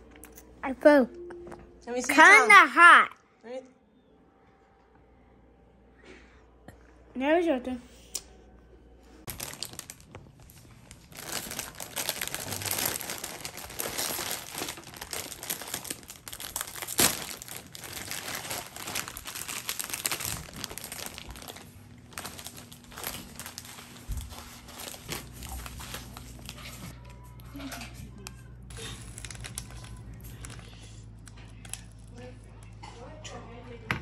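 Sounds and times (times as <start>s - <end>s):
plastic packet crinkling and tearing: 9.3s - 26.9s, 28.7s - 32.2s.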